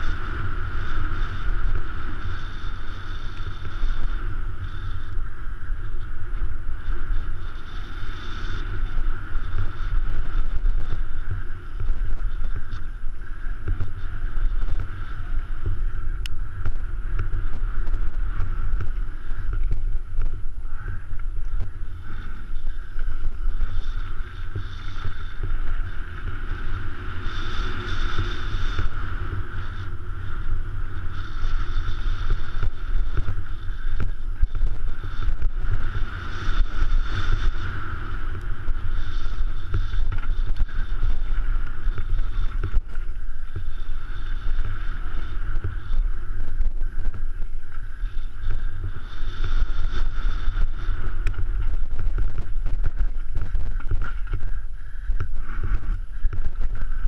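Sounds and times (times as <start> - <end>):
wind buffeting microphone: 0.0 - 57.0
tyres rumbling on gravel trail: 50.5 - 57.0.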